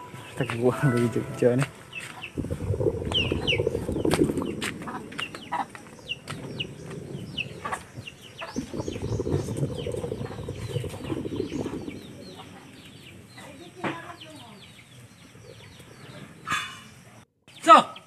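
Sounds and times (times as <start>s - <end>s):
chickens clucking and chirping: 2.0s - 13.4s
low rumbling noise: 2.2s - 13.4s.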